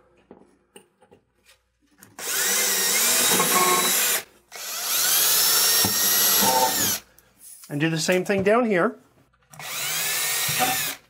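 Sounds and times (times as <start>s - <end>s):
cordless drill boring: 2.2s - 7.0s, 9.6s - 11.0s.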